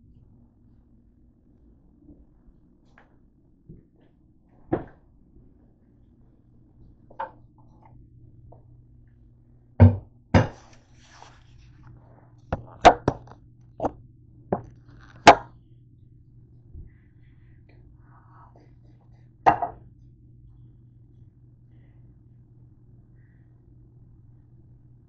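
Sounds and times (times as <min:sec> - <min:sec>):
low hum: 0:00.0 - 0:25.0
objects knocking on kitchen counter: 0:09.8 - 0:10.6, 0:19.5 - 0:19.8.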